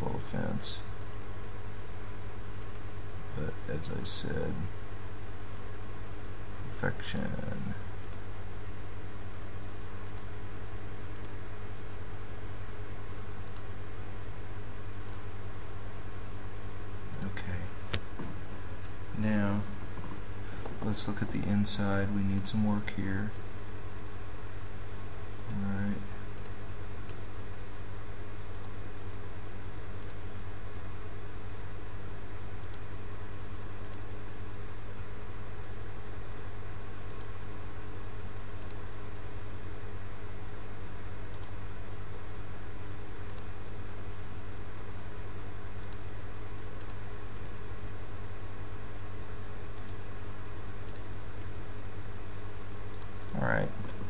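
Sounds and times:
low electrical hum and hiss: 0:00.0 - 0:54.0
computer mouse clicks: 0:02.6 - 0:02.9, 0:08.0 - 0:08.2, 0:10.0 - 0:10.3, 0:11.1 - 0:11.4, 0:13.4 - 0:13.7, 0:15.1 - 0:15.3, 0:25.4 - 0:25.6, 0:26.4 - 0:27.2, 0:28.5 - 0:28.8, 0:30.0 - 0:30.8, 0:32.6 - 0:32.8, 0:33.8 - 0:34.0, 0:37.1 - 0:37.4, 0:38.6 - 0:39.3, 0:41.3 - 0:41.6, 0:43.3 - 0:44.2, 0:45.8 - 0:46.0, 0:46.8 - 0:47.6, 0:49.8 - 0:50.0, 0:50.9 - 0:51.6, 0:52.9 - 0:53.1.

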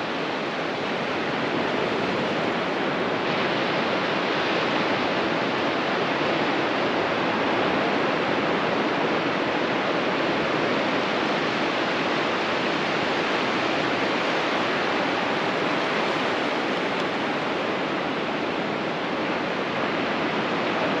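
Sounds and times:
ocean surf on beach: 0:00.0 - 0:21.0.

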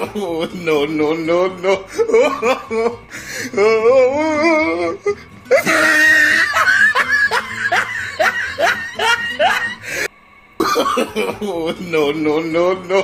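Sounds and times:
person laughing: 0:00.0 - 0:12.4
comedic background music: 0:00.0 - 0:13.0.

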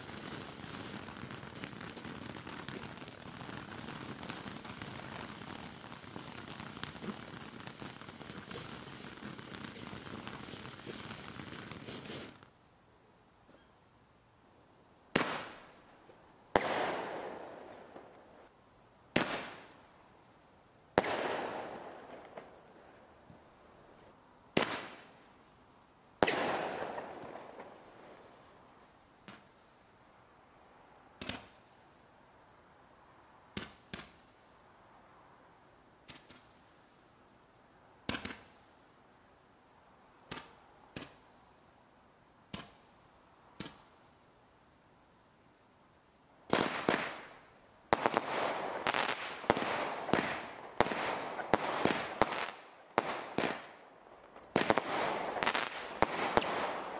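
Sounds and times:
fireworks bangs echoing: 0:00.0 - 0:12.4, 0:15.1 - 0:15.7, 0:16.6 - 0:18.1, 0:19.2 - 0:19.7, 0:21.0 - 0:22.6, 0:24.6 - 0:25.1, 0:26.2 - 0:28.2, 0:46.5 - 0:56.9.

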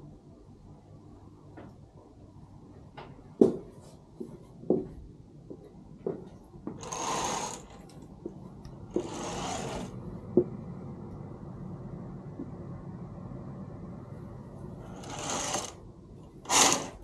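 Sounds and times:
curtain sliding along rail: 0:06.8 - 0:07.8, 0:08.9 - 0:10.0, 0:14.8 - 0:15.8, 0:16.4 - 0:17.0.

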